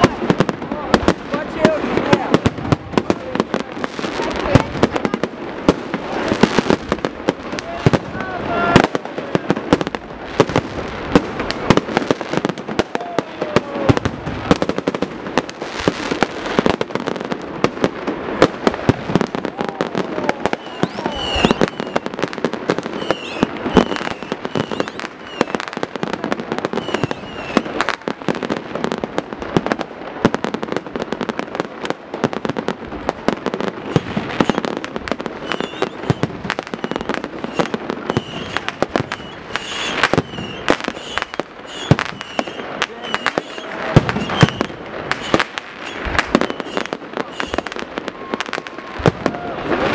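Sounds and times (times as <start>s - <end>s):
firework bangs and crackles: 0.0s - 49.9s
firework whistling: 18.3s - 28.2s, 33.7s - 49.9s.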